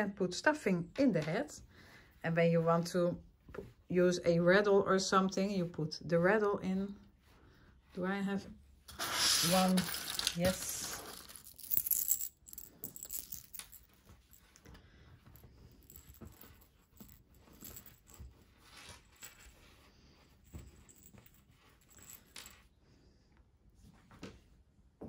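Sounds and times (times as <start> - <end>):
small hard items clattering: 9.0 - 14.0.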